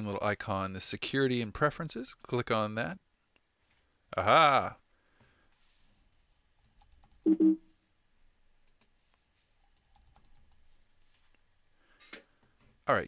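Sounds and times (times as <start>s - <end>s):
computer keyboard keystrokes: 6.6s - 7.3s, 9.6s - 10.6s.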